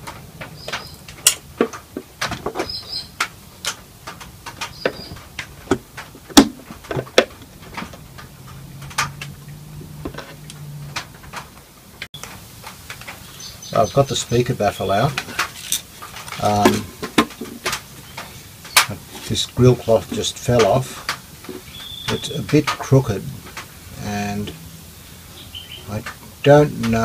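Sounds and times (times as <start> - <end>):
light clicks and knocks of screws: 15.2 - 19.4.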